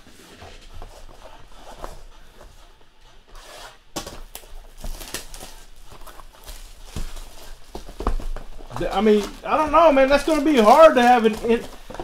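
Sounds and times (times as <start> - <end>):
plastic wrap crinkling and tearing: 4.2 - 12.0.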